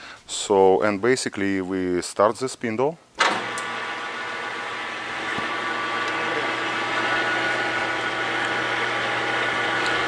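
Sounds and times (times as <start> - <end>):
lathe machine whine and hum: 3.2 - 10.0.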